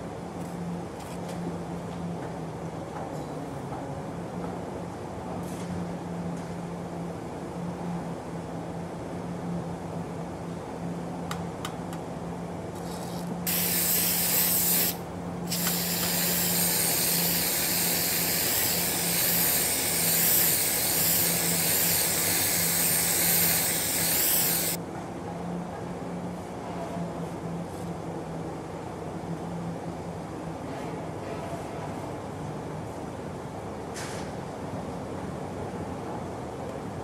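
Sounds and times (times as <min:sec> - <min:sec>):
steady low hum: 0:05.9 - 0:26.4
loud steady hiss: 0:12.8 - 0:24.8.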